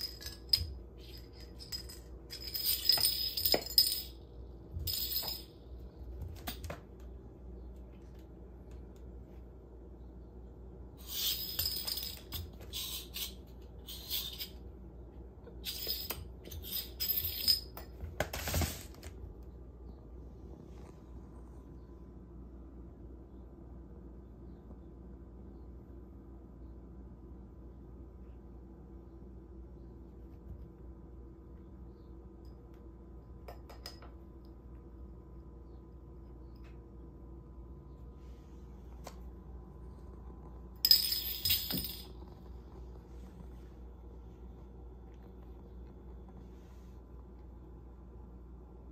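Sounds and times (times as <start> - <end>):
bottle cap clattering on tile floor: 0.0 - 4.2, 4.8 - 5.6, 11.0 - 14.6, 15.6 - 18.8, 40.8 - 42.3
low room hum: 0.0 - 48.9.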